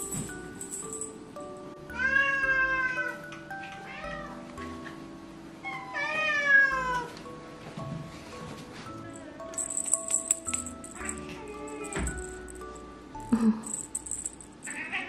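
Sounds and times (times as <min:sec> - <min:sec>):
background music: 0:00.0 - 0:14.9
cat meowing: 0:02.0 - 0:03.2, 0:03.8 - 0:04.4, 0:05.6 - 0:07.2.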